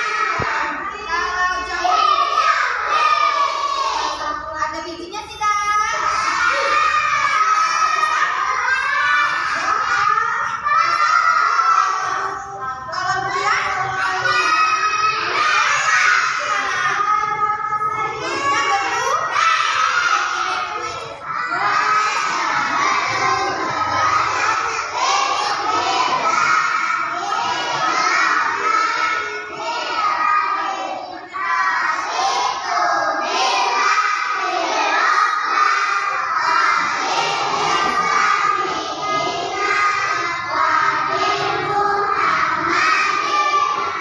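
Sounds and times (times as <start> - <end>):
children's voices shouting: 0.0 - 4.7, 5.3 - 44.0.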